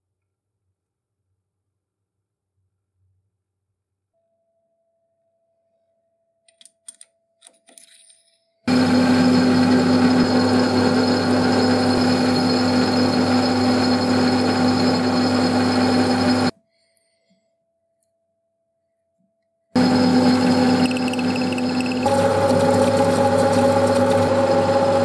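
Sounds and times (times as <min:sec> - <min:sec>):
power tool running: 0:08.7 - 0:16.5, 0:19.8 - 0:25.0.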